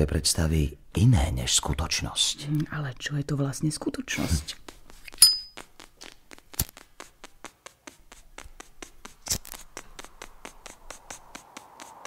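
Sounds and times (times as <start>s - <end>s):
rapid even clicking: 4.5s - 12.0s
high ping: 5.2s - 5.6s.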